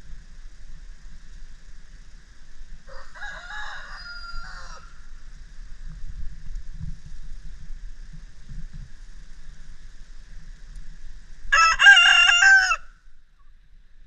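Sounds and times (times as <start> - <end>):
rooster crowing: 2.9 - 5.2, 11.5 - 13.0.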